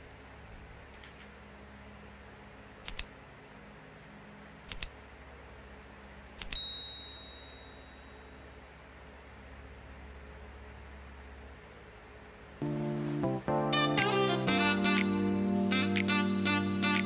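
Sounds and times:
low steady hum: 0.0s - 17.0s
mouse clicks: 2.8s - 3.1s, 4.7s - 4.9s
bright bell ding: 6.6s - 8.4s.

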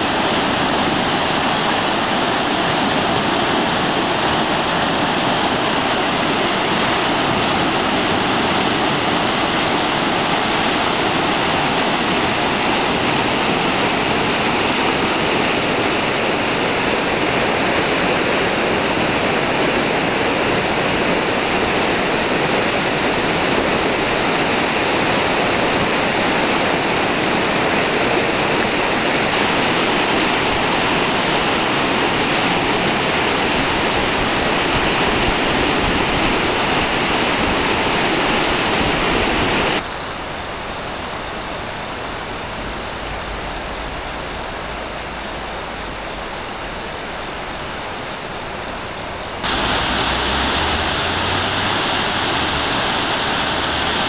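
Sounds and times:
flooded river rushing: 0.0s - 54.0s.

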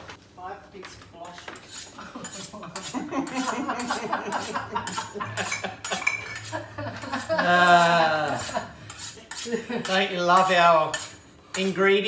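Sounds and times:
cutlery and dishes clinking: 2.2s - 7.3s.

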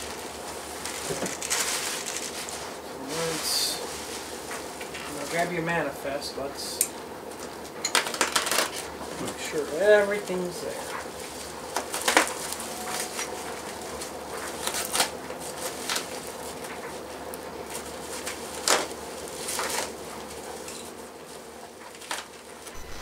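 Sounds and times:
plastic bag crinkling: 0.0s - 5.6s, 9.6s - 16.7s, 21.9s - 23.0s.

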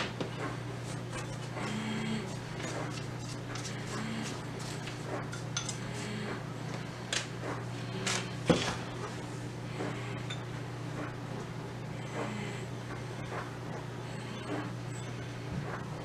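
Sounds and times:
steady low hum: 0.0s - 16.0s
utensils clinking on glass cooktop: 5.3s - 5.9s.

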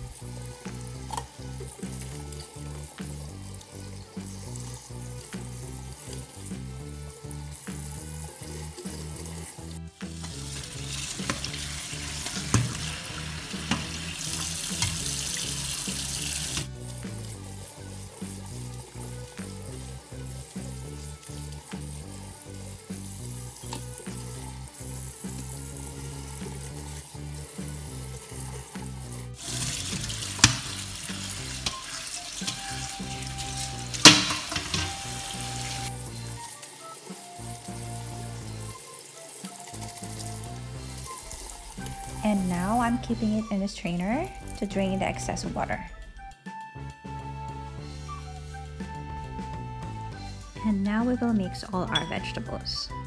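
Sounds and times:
background music: 0.0s - 53.0s
tap water splashing: 0.7s - 3.3s, 10.0s - 17.4s, 18.1s - 25.6s, 26.3s - 36.0s, 36.7s - 42.5s
tap water splashing on cabbage: 10.1s - 17.4s, 28.5s - 35.9s.

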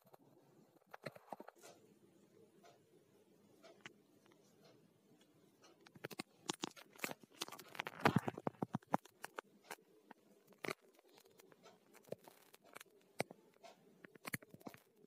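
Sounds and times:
small clicks and rustles: 0.0s - 1.8s, 3.6s - 15.0s
faint steady hum: 0.0s - 15.0s.

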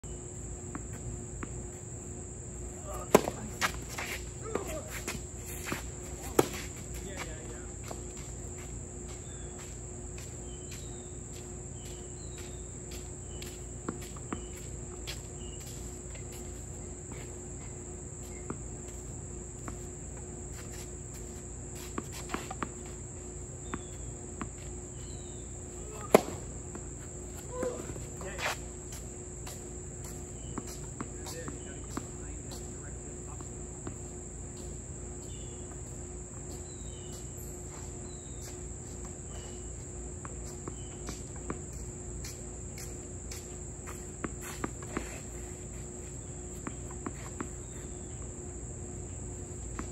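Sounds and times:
tennis ball bouncing: 2.8s - 7.1s, 23.6s - 32.6s
racket striking ball: 3.0s - 6.7s, 25.9s - 26.8s.

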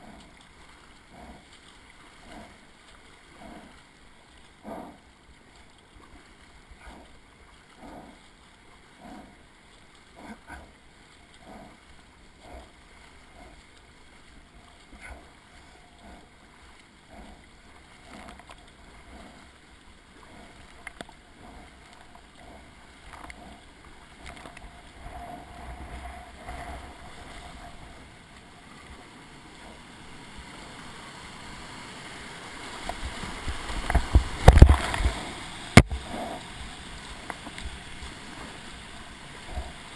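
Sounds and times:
kayak paddle strokes: 0.0s - 39.9s
rushing whitewater: 0.0s - 39.9s
heavy splashes: 5.9s - 39.9s
water splashing off bow: 10.1s - 39.9s.

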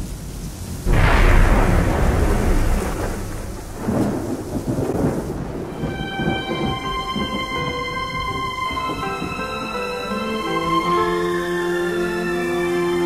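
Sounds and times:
steady rainfall: 0.0s - 13.0s
thunder rumbling: 0.9s - 9.4s.

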